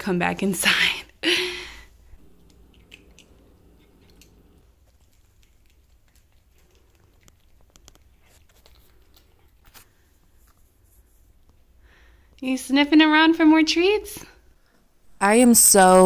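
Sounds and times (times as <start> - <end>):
cat chewing dry kibble: 2.1 - 12.4.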